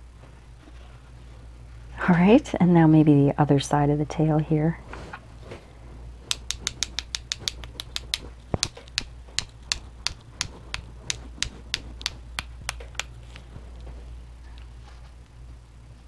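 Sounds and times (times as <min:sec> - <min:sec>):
paintbrush tapping on pencil: 0:06.3 - 0:13.2.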